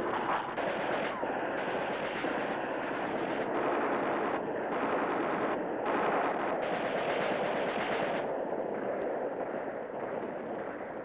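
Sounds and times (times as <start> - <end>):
automatic weapons fire: 0.6 - 8.3.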